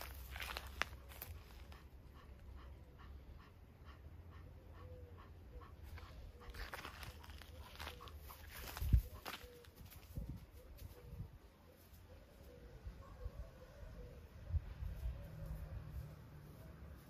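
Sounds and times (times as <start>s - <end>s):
panther panting: 1.2s - 8.4s.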